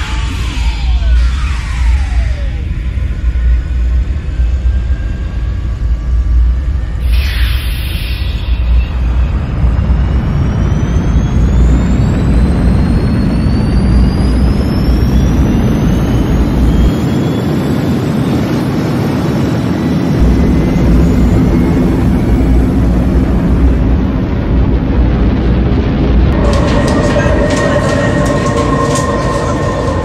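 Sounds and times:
noisy rising sweep: 26.3 - 30.0.

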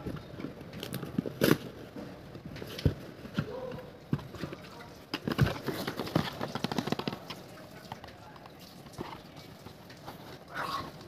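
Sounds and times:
cardboard packaging rustling: 0.0 - 7.5.

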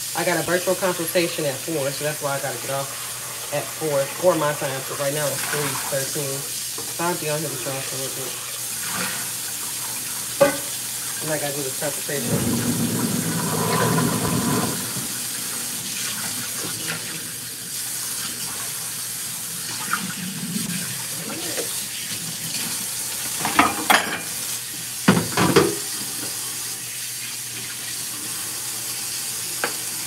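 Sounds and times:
dishes clattering: 10.4 - 10.8, 23.2 - 24.4, 25.1 - 25.9
tap running into metal sink: 25.0 - 26.4, 29.6 - 29.8.

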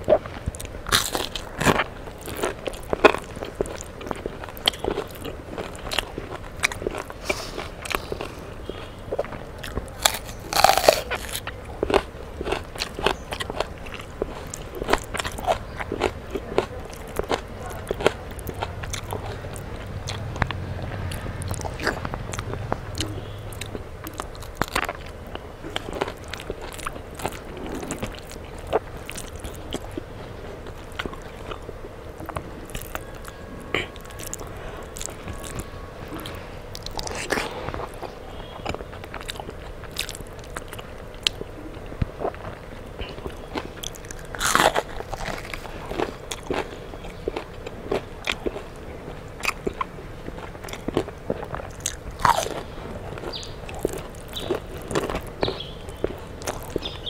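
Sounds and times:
chewing with wet mouth clicks: 0.0 - 57.0
crunching bite into onion: 6.6 - 13.7, 43.3 - 46.7, 50.7 - 57.0.

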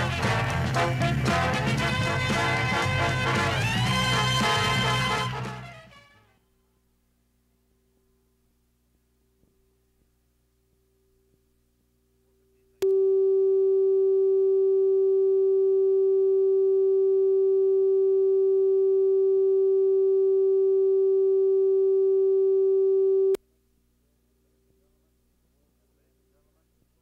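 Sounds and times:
electronic test tone: 12.8 - 23.4.

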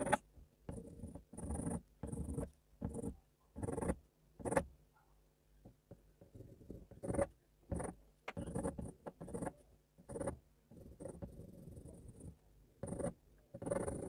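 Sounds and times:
pencil scratching on paper: 0.0 - 4.7, 6.2 - 14.0.

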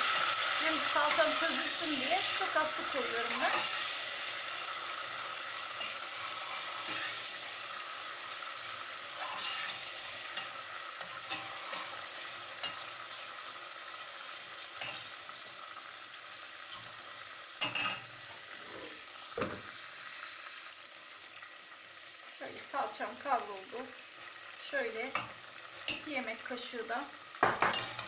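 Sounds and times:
metal spoon scraping a pot: 0.0 - 4.1, 5.2 - 7.6, 9.0 - 13.3
paste sizzling in oil: 0.0 - 28.0
knock: 27.4 - 27.8
spoon clinking against pot: 27.4 - 28.0.

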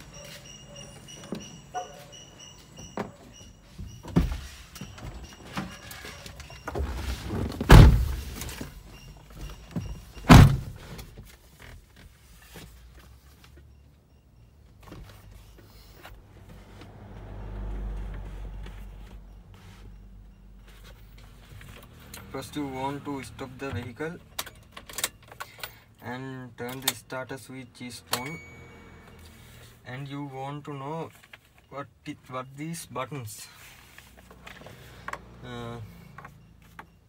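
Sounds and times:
heavy thuds of truck door: 7.6 - 8.3, 10.3 - 10.8.

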